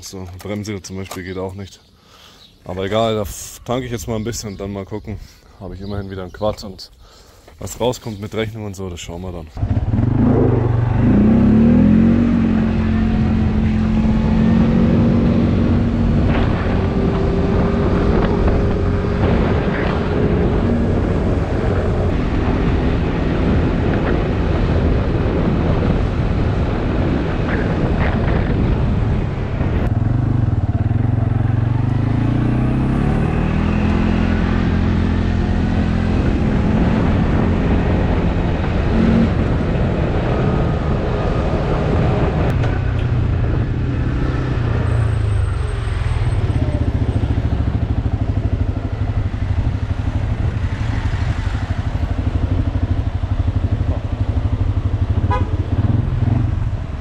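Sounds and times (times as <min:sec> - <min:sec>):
wind and ground noise: 0:00.0 - 0:57.0
quad bike engine running: 0:09.6 - 0:22.6, 0:46.4 - 0:56.5.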